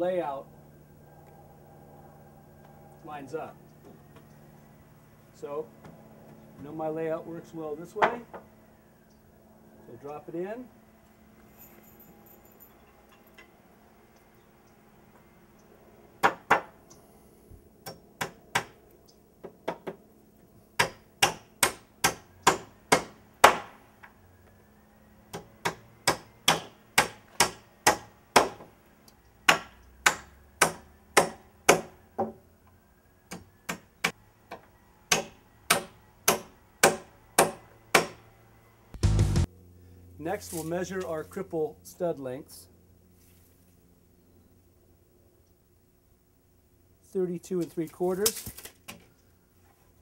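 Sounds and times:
hammer driving nails into wood: 20.8 - 23.8.

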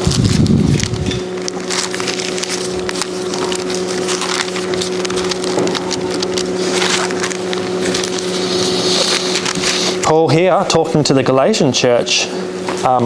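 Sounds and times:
thin pages rustling: 0.0 - 10.2
electrical hum: 0.0 - 13.0.

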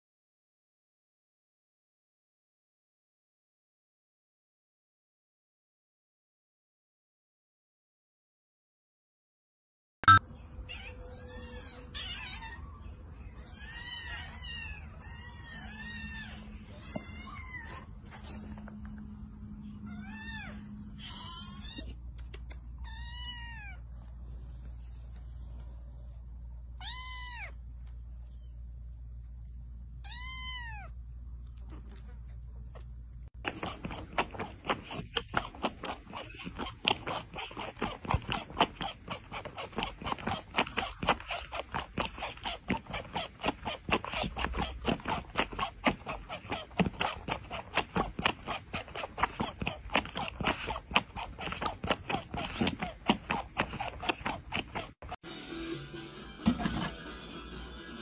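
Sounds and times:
kittens mewing: 10.6 - 18.4, 19.7 - 24.0, 26.7 - 27.7, 30.0 - 55.2
cat sucking from bottle: 33.4 - 55.2.

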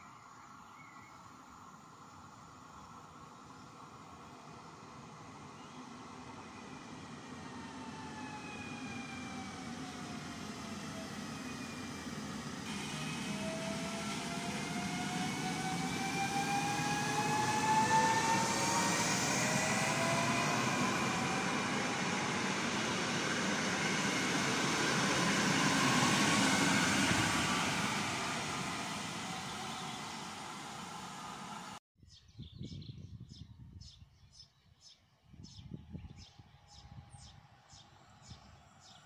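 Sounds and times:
wheels rumbling on rail: 2.2 - 31.8
train motors whining: 7.9 - 31.8.

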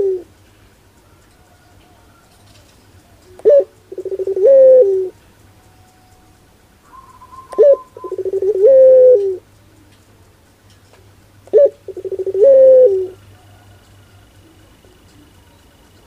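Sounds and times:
dove cooing: 0.0 - 0.4, 1.0 - 5.2, 6.8 - 9.5, 11.4 - 16.0.

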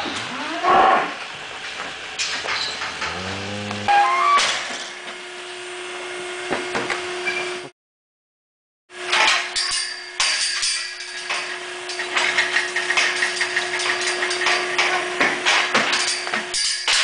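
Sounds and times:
steady machine hum: 1.1 - 7.7
steel gates clanking and rattling: 2.2 - 3.2, 9.1 - 17.0.

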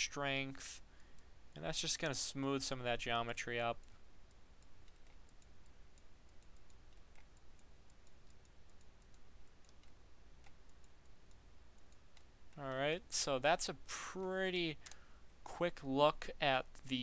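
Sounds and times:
low steady hum: 0.0 - 17.0
computer mouse clicking: 3.8 - 12.6, 14.8 - 15.0.

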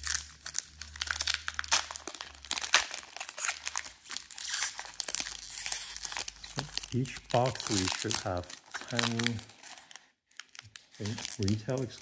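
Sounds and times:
foil wrapper crinkling and tearing: 0.0 - 12.0.

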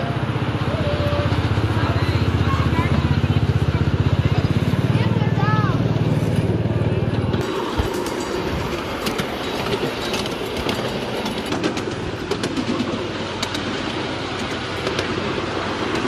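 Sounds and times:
train rolling rumble: 0.0 - 16.0
train wheels clicking on rail joints: 5.8 - 16.0.

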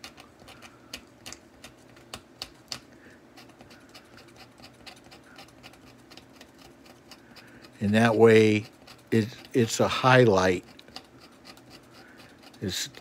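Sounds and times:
razor blade scraping paper: 3.4 - 13.0.

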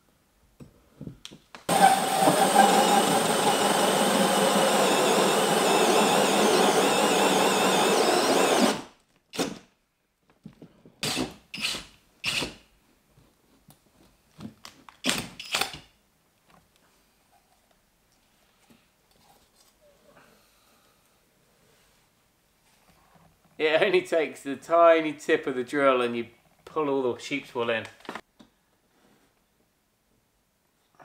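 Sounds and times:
drill cutting with hole saw: 1.7 - 9.6, 11.0 - 12.5.

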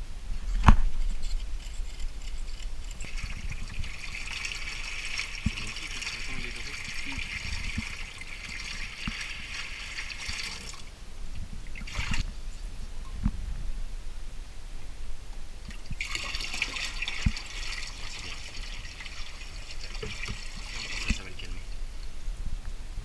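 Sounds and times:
water pouring and splashing: 2.2 - 10.9, 11.6 - 12.3, 15.7 - 21.8.

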